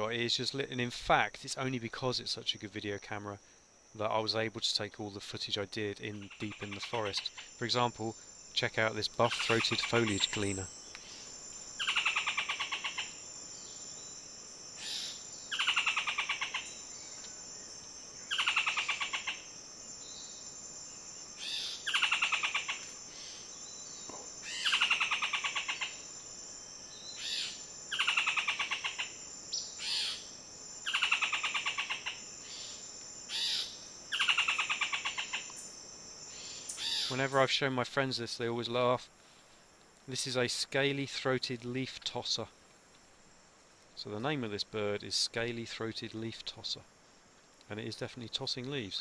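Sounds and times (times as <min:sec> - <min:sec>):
high insect drone: 0:00.0 - 0:49.0
bird singing rattling notes: 0:06.1 - 0:11.0
short bird calls: 0:21.4 - 0:26.0, 0:36.3 - 0:37.2.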